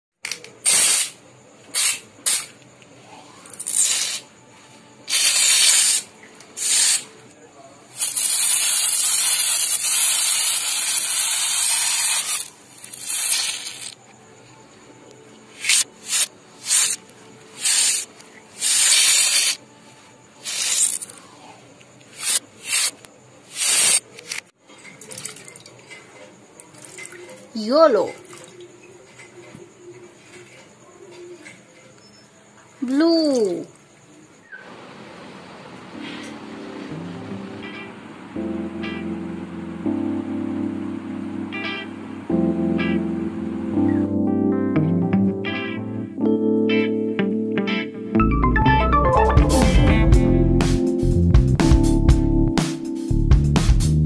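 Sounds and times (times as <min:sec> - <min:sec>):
aerosol can spraying: 0:00.7 - 0:01.2, 0:01.8 - 0:02.5, 0:03.8 - 0:04.3, 0:05.1 - 0:07.1, 0:08.0 - 0:14.0, 0:15.6 - 0:17.0, 0:17.6 - 0:19.6, 0:20.4 - 0:21.1, 0:22.1 - 0:24.1.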